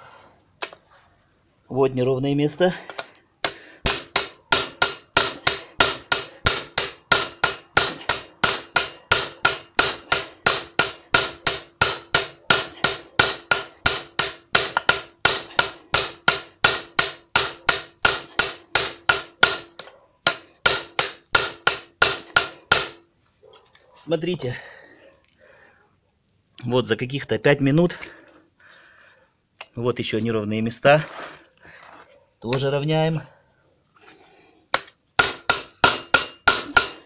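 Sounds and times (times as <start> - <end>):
hammer striking metal: 3.4 - 23.0, 34.7 - 37.0.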